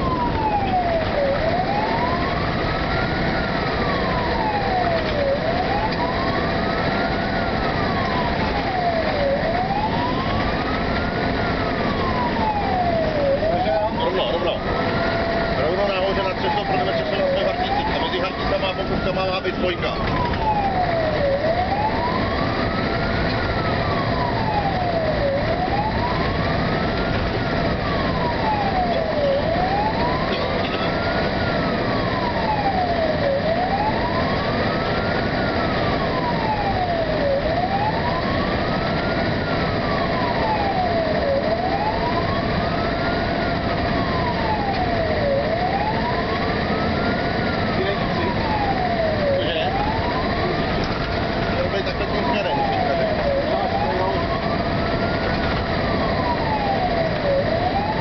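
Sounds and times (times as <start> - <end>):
fire engine siren wailing: 0.0 - 58.0
truck engine and road noise: 0.0 - 58.0.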